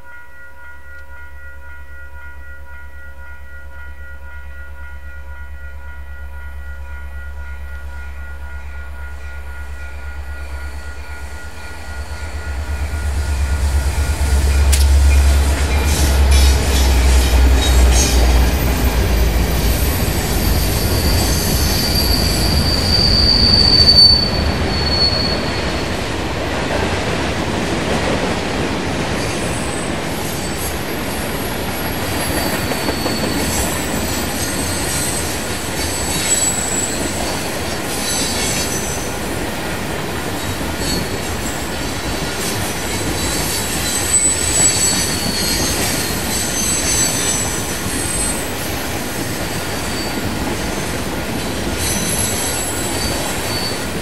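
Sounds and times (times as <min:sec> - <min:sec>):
locomotive engine drone: 0:00.9 - 0:24.8
train wheels squealing: 0:09.3 - 0:26.1, 0:29.2 - 0:39.3, 0:40.4 - 0:54.0.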